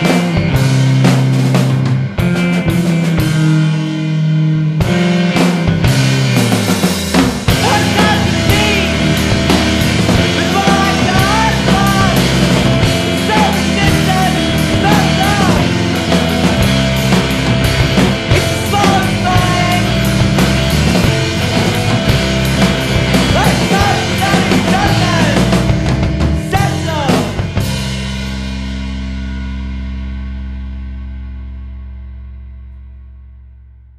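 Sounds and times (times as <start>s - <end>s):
punk rock band with singing: 0.0s - 29.5s.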